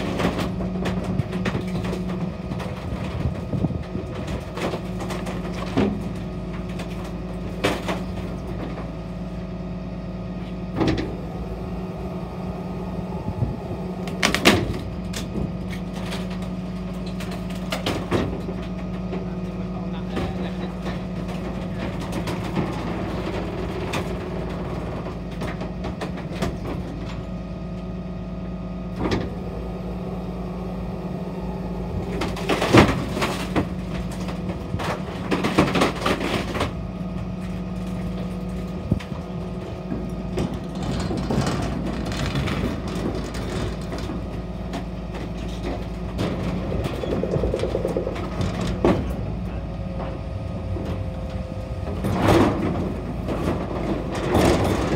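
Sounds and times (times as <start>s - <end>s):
refuse truck idling: 0.0s - 54.9s
steel bin rattling: 28.7s - 54.9s.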